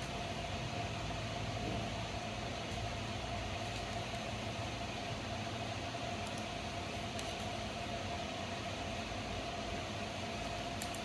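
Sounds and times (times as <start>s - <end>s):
appliance hum and hiss: 0.0s - 11.0s.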